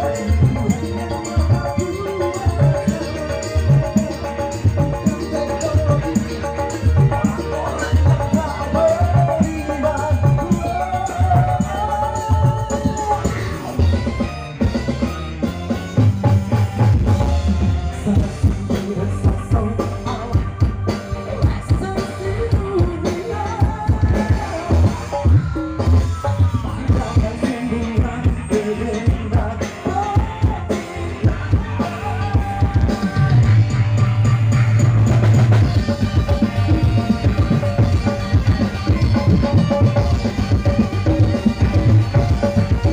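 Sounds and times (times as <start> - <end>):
man singing into a microphone: 0.0 - 14.3, 17.1 - 34.3
drum kit beat: 0.0 - 42.9
electric guitars: 0.0 - 42.9.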